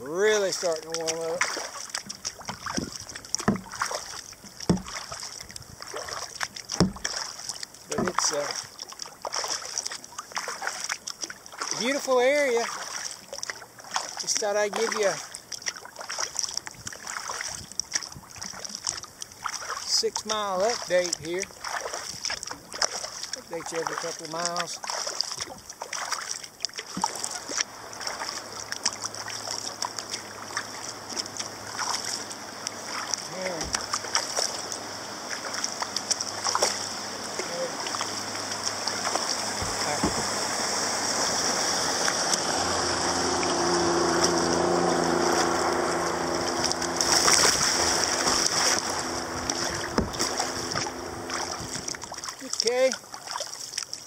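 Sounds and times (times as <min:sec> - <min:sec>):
paddle splashing water: 0:00.0 - 0:54.0
steady low hum: 0:27.4 - 0:52.4.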